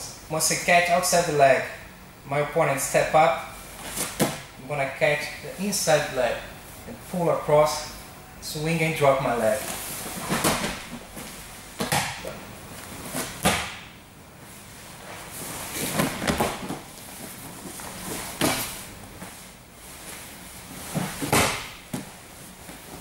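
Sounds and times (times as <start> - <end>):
bodies thumping on padded mat: 10.0 - 12.2, 13.1 - 13.9, 15.7 - 18.8, 20.9 - 22.8.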